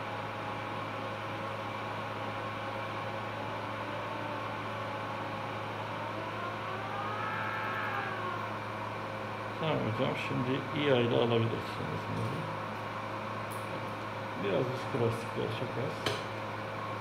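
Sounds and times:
machine electrical hum: 0:00.0 - 0:17.0.

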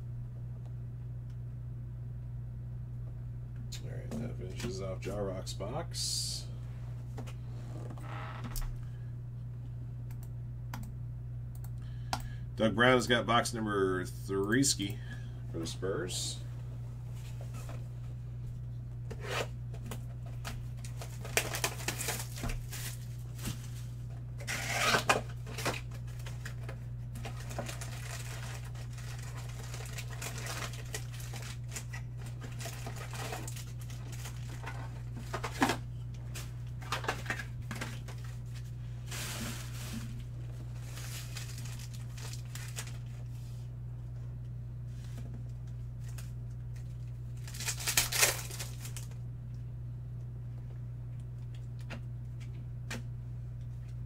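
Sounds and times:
steady low hum: 0:00.0 - 0:54.0
wrappers tearing and crinkling: 0:20.8 - 0:23.8, 0:24.4 - 0:43.3, 0:46.0 - 0:49.2.

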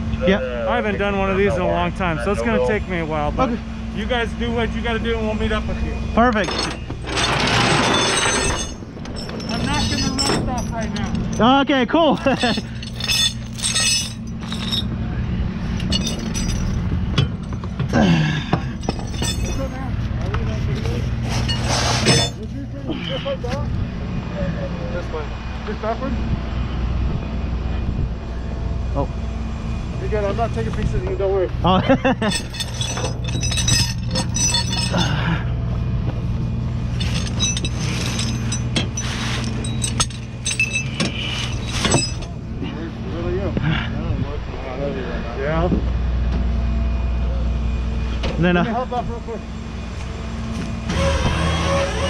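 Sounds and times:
chains and hooks clinking: 0:06.2 - 0:15.0, 0:15.6 - 0:19.9, 0:21.3 - 0:22.5, 0:32.1 - 0:35.4, 0:36.9 - 0:42.4.

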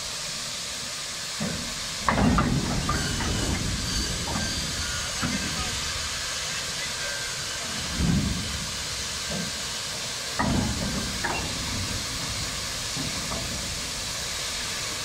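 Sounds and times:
steam locomotive hissing: 0:00.0 - 0:15.0
metallic clanks: 0:01.4 - 0:06.0, 0:10.4 - 0:14.6.

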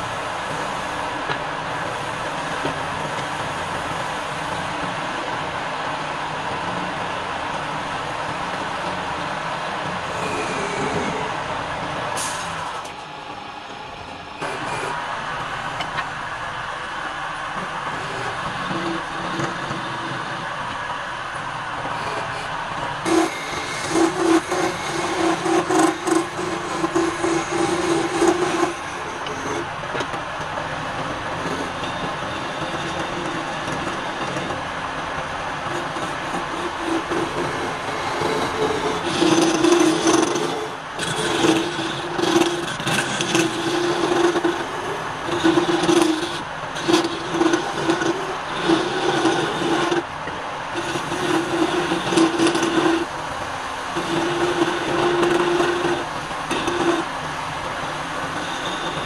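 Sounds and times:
wood lathe running: 0:00.0 - 0:59.0
gouge cutting spinning wood: 0:09.9 - 0:11.6, 0:14.4 - 0:59.0.

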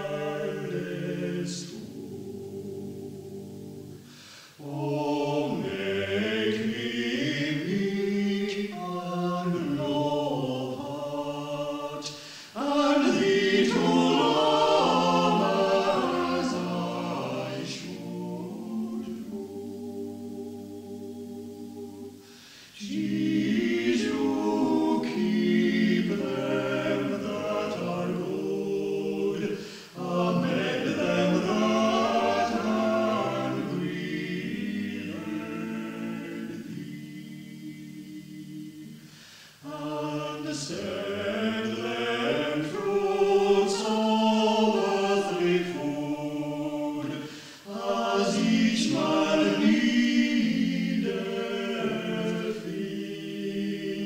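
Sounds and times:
choir singing unaccompanied: 0:00.0 - 0:54.0.

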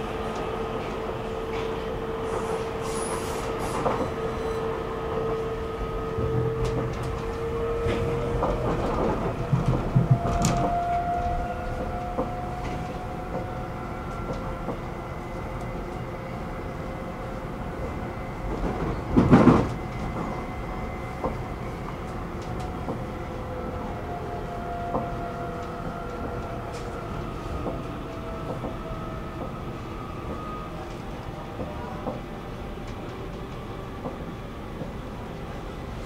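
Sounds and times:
train wheels rumbling on rail: 0:00.0 - 0:36.0.

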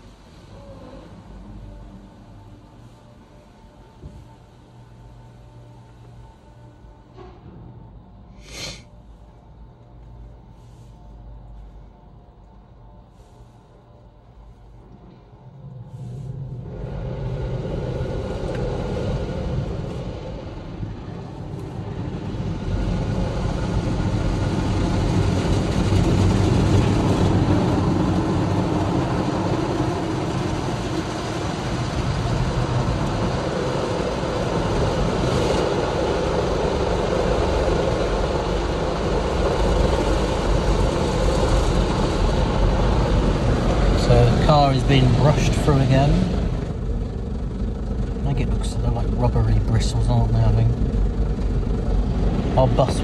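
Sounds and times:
car wash machinery rumble: 0:00.0 - 0:53.0
car wash spraying water: 0:15.9 - 0:53.0.

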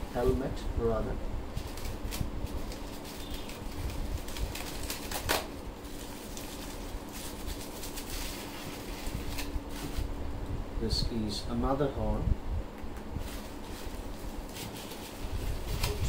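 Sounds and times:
plastic wrapping crinkling: 0:01.5 - 0:10.2, 0:13.2 - 0:16.0.

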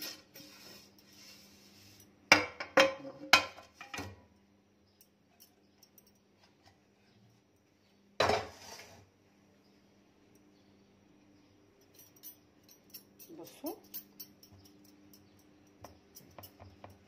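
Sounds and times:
knocks and clinks on metal pan: 0:02.3 - 0:04.2.

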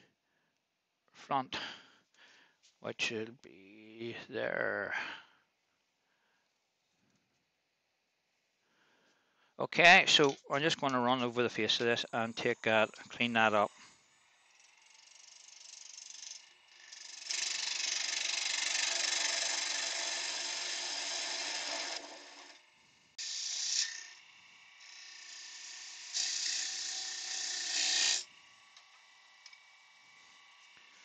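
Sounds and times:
gouge scraping spinning wood: 0:11.0 - 0:31.0.

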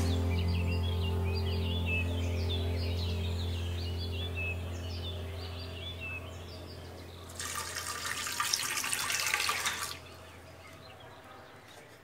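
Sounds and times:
water pouring and splashing: 0:07.3 - 0:10.1.

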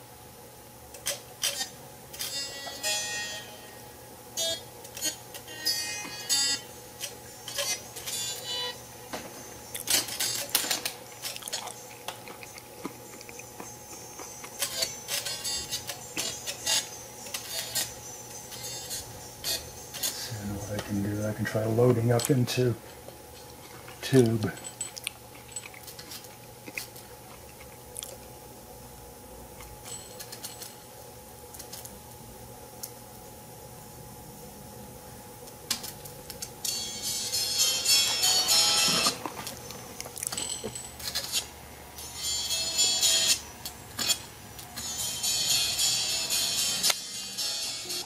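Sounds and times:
faint steady hum: 0:00.0 - 0:48.0
thin crackly music: 0:04.8 - 0:22.5.

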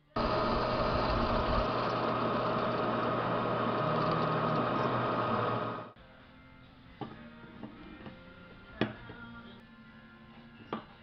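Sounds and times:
milling machine cutting metal: 0:00.1 - 0:06.0.

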